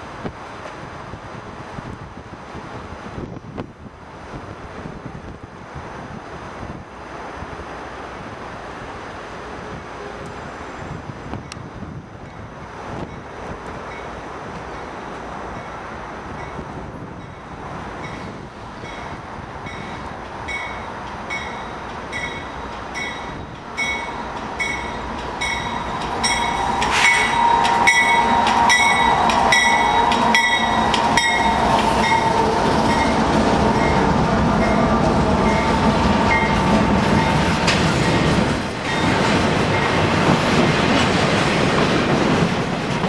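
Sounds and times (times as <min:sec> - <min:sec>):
diesel locomotives passing: 0:00.0 - 0:43.0
freight cars rolling past: 0:07.0 - 0:43.0
bell ringing: 0:23.0 - 0:33.1.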